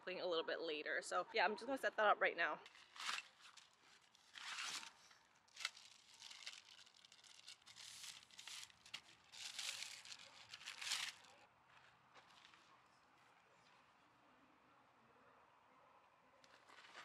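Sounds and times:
plastic wrapping crinkling: 0:02.6 - 0:11.4.

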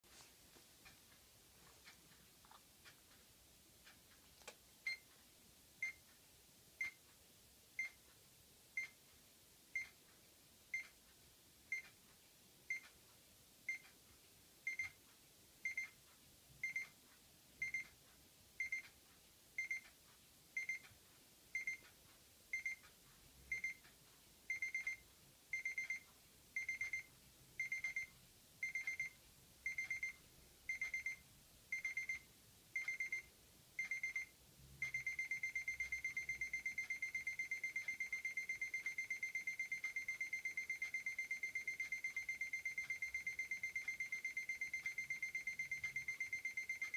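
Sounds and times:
alarm clock beeping: 0:16.6 - 0:17.0, 0:17.6 - 0:17.9, 0:18.6 - 0:18.9, 0:19.6 - 0:19.9, 0:20.6 - 0:20.9, 0:21.6 - 0:21.9, 0:22.5 - 0:22.9, 0:23.5 - 0:23.9, 0:24.5 - 0:32.2, 0:32.8 - 0:46.9.

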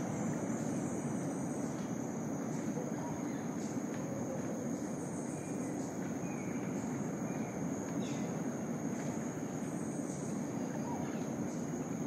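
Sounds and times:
faint bird chirps: 0:09.7 - 0:12.0.

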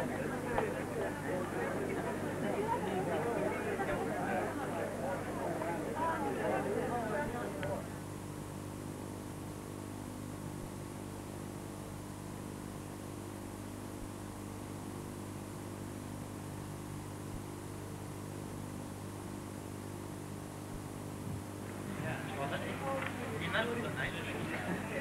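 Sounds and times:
low electrical hum: 0:00.0 - 0:25.0
tape hiss: 0:00.0 - 0:25.0.

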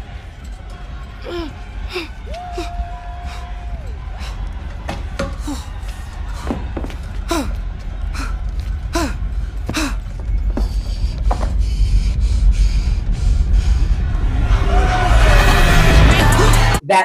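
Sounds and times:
woman's strained breathing: 0:01.2 - 0:04.6, 0:07.3 - 0:14.0
muffled bass club music: 0:14.0 - 0:16.8.

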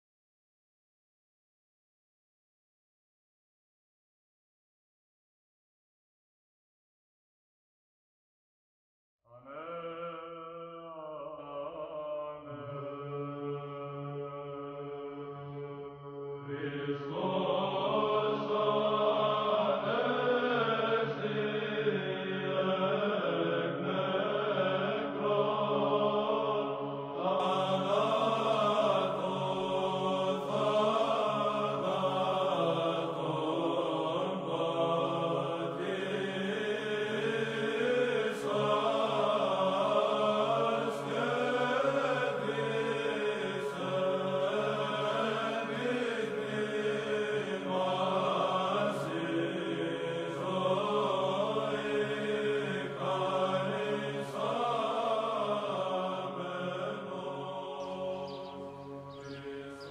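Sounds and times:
low voices chanting over drone: 0:16.5 - 0:59.9.

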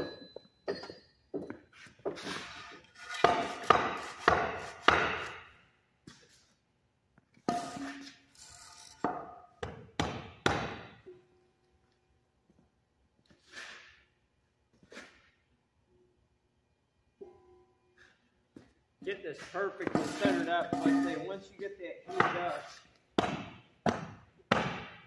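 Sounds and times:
sharp metallic knocks and clanks: 0:03.1 - 0:05.6, 0:07.4 - 0:08.2, 0:08.9 - 0:11.1, 0:19.8 - 0:21.5, 0:22.1 - 0:22.6.

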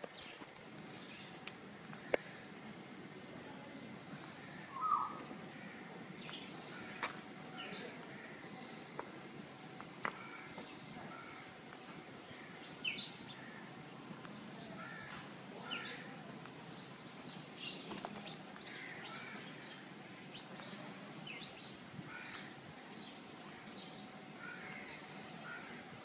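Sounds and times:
faint bird chirps: 0:04.7 - 0:05.2.

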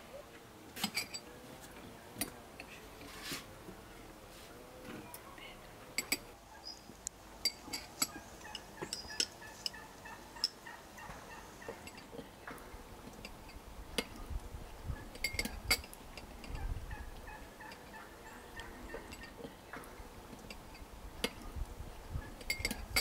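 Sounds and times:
fowl calling: 0:08.1 - 0:11.8.

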